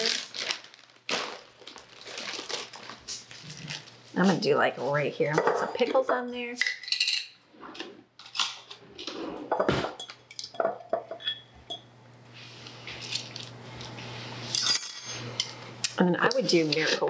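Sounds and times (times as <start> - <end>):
utensils clinking against dishes: 5.3 - 7.4, 9.5 - 11.9, 14.4 - 17.0
low steady hum: 8.2 - 17.0.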